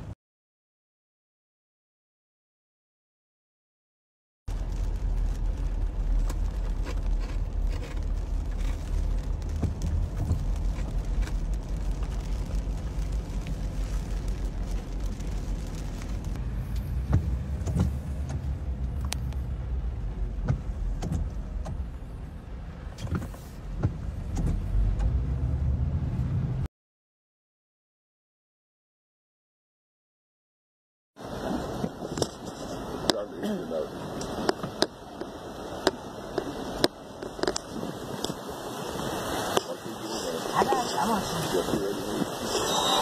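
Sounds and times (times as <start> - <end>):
engine and water rumble: 4.5 - 26.7, 31.2 - 43.0.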